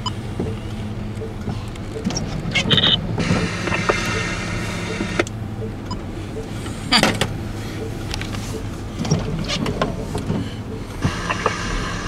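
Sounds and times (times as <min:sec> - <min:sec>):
sharp clicks and knocks: 0:00.0 - 0:04.2
car engine hum from inside: 0:00.0 - 0:12.0
hiss: 0:11.0 - 0:12.0.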